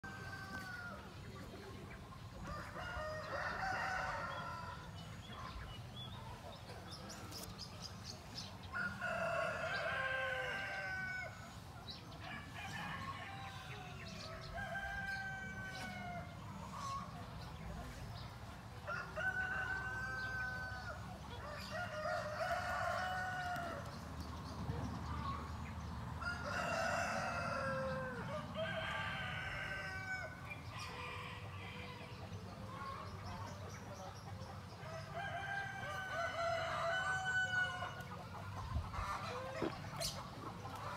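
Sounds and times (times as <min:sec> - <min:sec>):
rooster crowing: 0:02.5 - 0:04.8, 0:08.8 - 0:11.4, 0:18.9 - 0:23.8, 0:26.2 - 0:30.4, 0:35.2 - 0:38.0.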